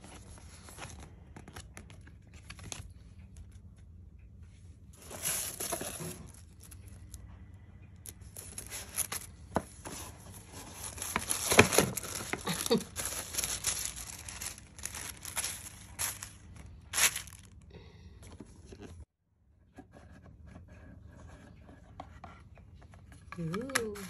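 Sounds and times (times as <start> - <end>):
tissue paper crinkling and tearing: 8.3 - 17.6.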